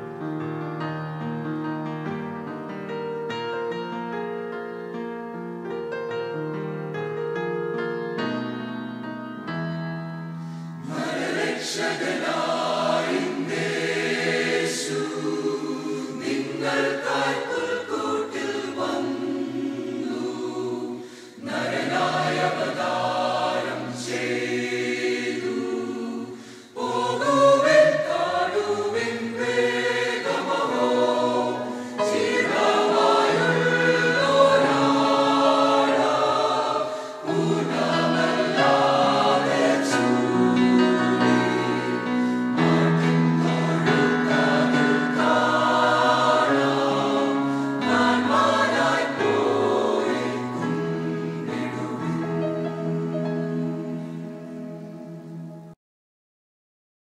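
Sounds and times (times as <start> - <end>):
electric keyboard: 0.0 - 12.2, 28.3 - 55.8
choir singing: 10.8 - 55.8.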